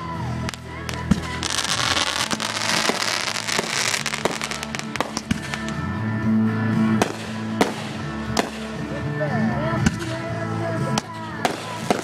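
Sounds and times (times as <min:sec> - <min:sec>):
music: 0:00.0 - 0:12.0
fireworks crackling: 0:00.2 - 0:05.8, 0:11.0 - 0:12.0
firework bangs: 0:00.9 - 0:05.8, 0:07.0 - 0:08.8, 0:11.4 - 0:12.0.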